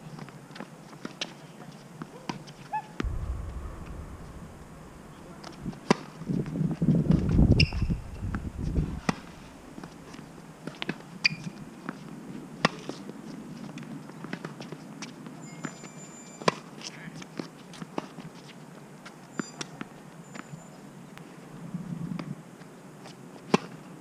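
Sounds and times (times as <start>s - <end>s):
low rumbling noise: 3.0s - 10.4s.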